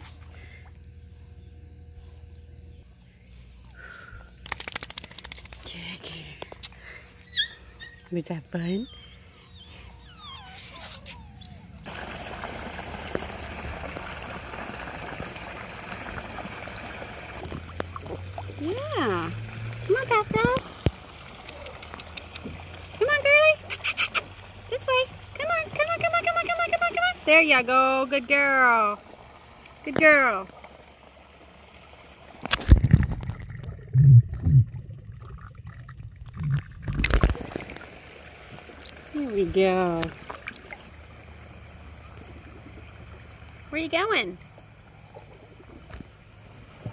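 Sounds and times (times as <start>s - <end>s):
pool water splashing: 8.5s - 46.9s
fountain jet splashing into water: 10.8s - 23.7s
underwater gurgling: 32.3s - 39.1s.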